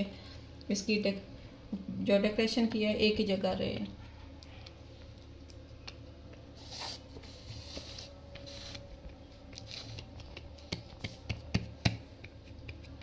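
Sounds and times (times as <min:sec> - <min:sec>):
steady low hum: 0:00.0 - 0:13.0
spatula scraping soft sweet: 0:04.0 - 0:10.7.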